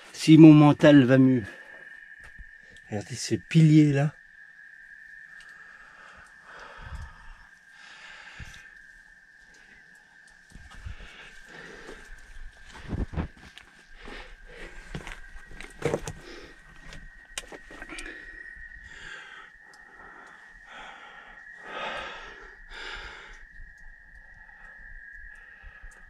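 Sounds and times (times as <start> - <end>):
person breathing heavily: 5.6 - 8.8, 10.7 - 15.3, 17.8 - 23.5
knocks and scrapes on rock: 14.8 - 16.3.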